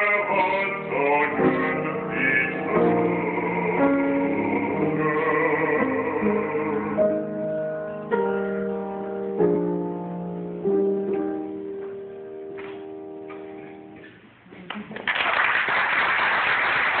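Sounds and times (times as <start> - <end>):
piano chords ringing: 0.0 - 14.0
audience applause: 14.9 - 17.0.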